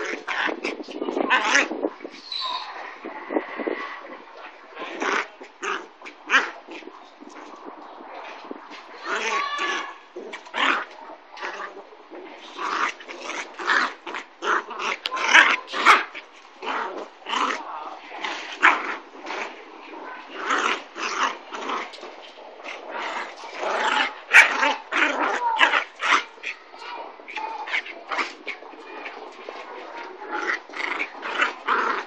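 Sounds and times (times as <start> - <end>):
puppies growling and yipping: 0.0 - 4.1, 12.4 - 32.0.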